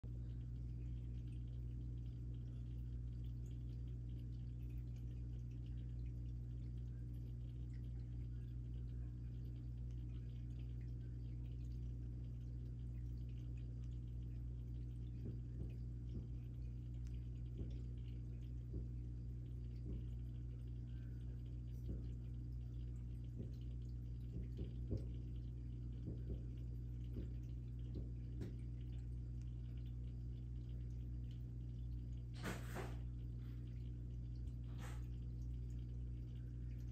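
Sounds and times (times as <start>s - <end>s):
aquarium pump humming: 0.0s - 36.9s.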